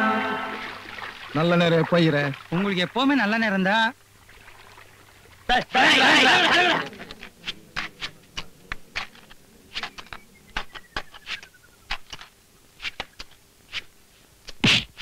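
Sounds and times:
faint falling tone: 0.0 - 1.0.

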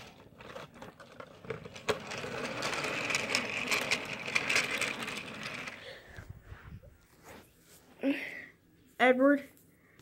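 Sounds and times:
toy train motor whirring: 0.0 - 6.0.

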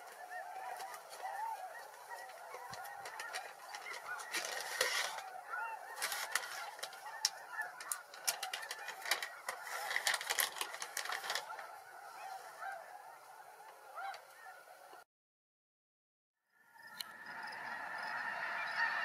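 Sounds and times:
crackling noise: 0.0 - 15.0
geese honking: 0.0 - 15.0, 16.8 - 19.0.

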